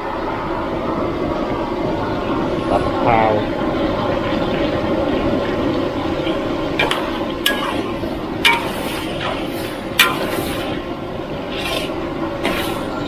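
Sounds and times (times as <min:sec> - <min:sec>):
food sizzling in a wok: 0:06.0 - 0:13.0
spatula clinking on wok: 0:06.8 - 0:10.8.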